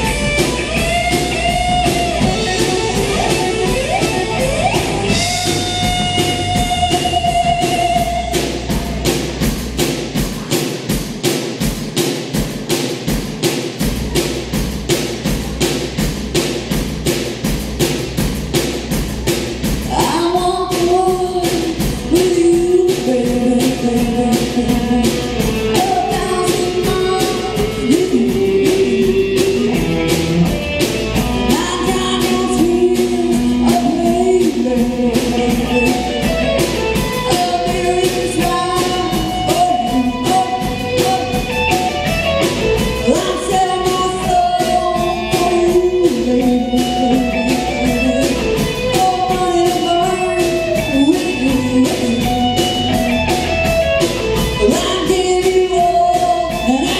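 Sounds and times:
band playing live: 0.0 - 56.9
steady drum beat: 0.0 - 56.9
person singing lead vocal: 19.9 - 29.9, 31.4 - 36.4, 37.1 - 42.0, 42.9 - 53.4, 54.5 - 56.9.

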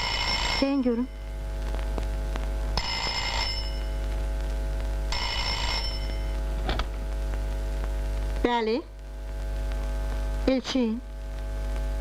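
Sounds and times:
telephone bell ringing: 0.0 - 1.3, 2.8 - 4.0, 5.1 - 6.4
steady hum: 0.0 - 12.0.

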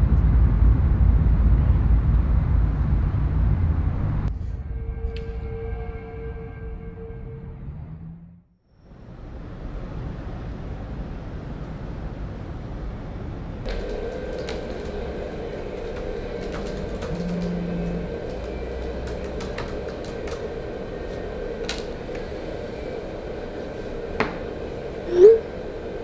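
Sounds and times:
steady low hum: 0.0 - 6.2, 12.9 - 26.0
short rising tone: 25.1 - 25.5.

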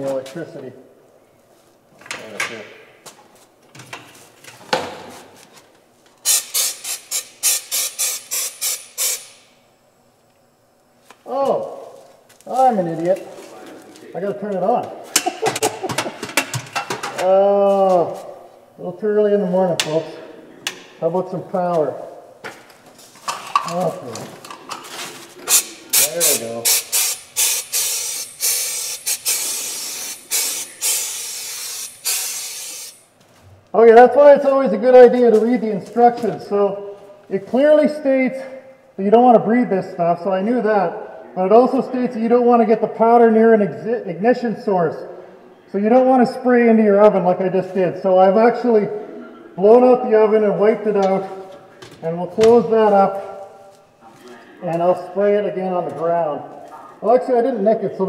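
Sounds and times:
powder gun hissing puffs: 6.2 - 9.4, 25.5 - 33.0.

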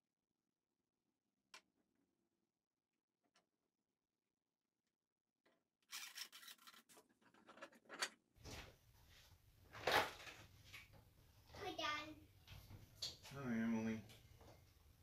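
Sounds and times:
wooden strips scraping: 5.8 - 8.2.

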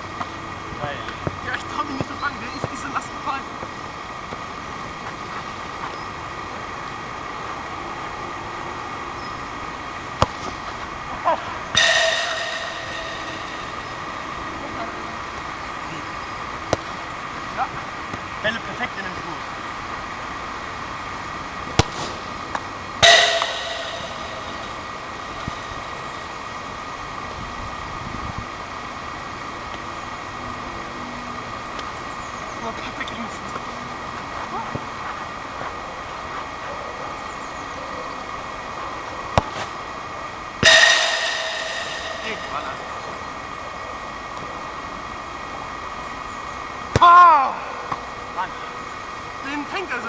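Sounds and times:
steady background hum: 0.0 - 27.8, 38.6 - 50.0
ball clanging on metal frame: 11.8 - 14.9, 23.0 - 26.1, 40.6 - 43.2
steady hum: 11.8 - 14.9, 23.0 - 26.5, 40.6 - 43.4.

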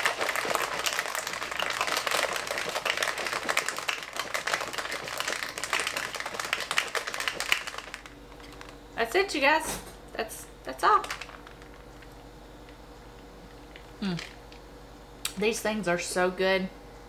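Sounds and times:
ice rattling in a shaker cup: 0.0 - 8.8, 11.0 - 12.1.

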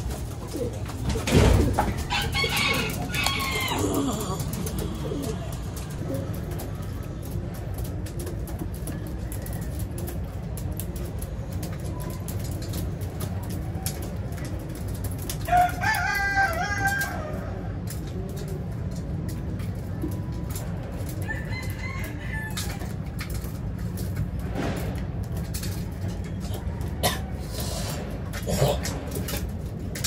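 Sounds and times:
pigeons cooing: 0.0 - 24.0
rooster crowing: 2.0 - 4.4, 15.5 - 17.6, 21.2 - 22.8.

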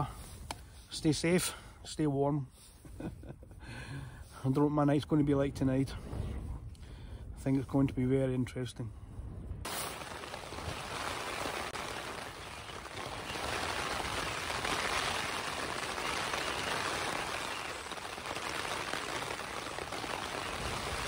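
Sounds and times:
rain on a tent: 9.7 - 21.0.

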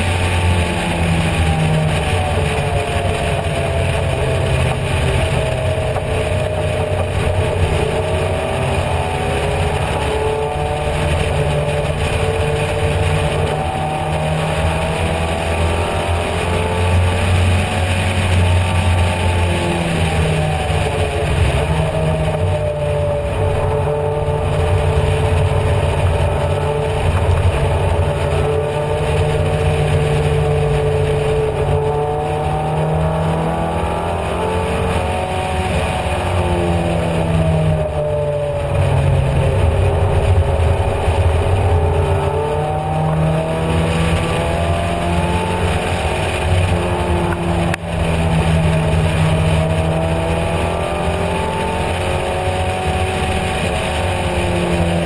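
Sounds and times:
race car engine at speed: 0.0 - 55.0
wind rush: 0.0 - 55.0.

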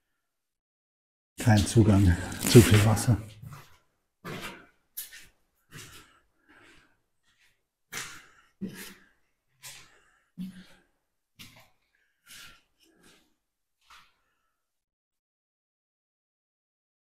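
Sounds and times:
footsteps on gritty concrete: 1.9 - 3.1.

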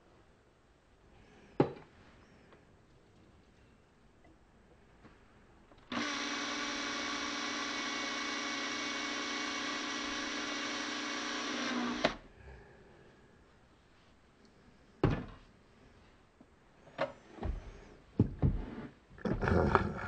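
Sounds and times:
cordless drill running: 5.9 - 12.2
drill stopping click: 5.9 - 12.2.

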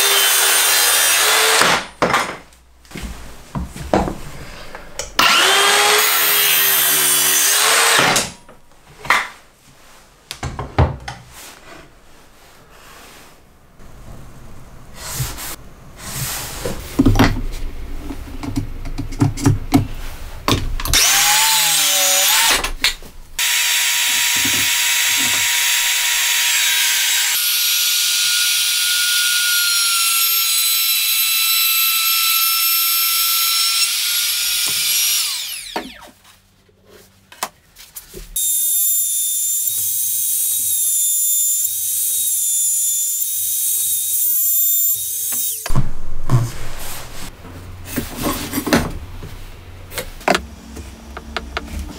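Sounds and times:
circular saw cutting wood: 0.0 - 1.7, 5.2 - 8.1, 21.0 - 22.6, 23.4 - 36.2, 38.4 - 45.8
router high whine: 23.4 - 36.1, 38.4 - 45.8.

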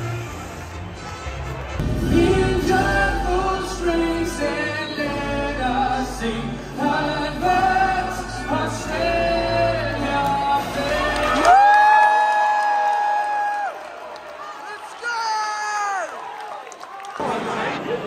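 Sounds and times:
musical accompaniment: 0.0 - 11.8.

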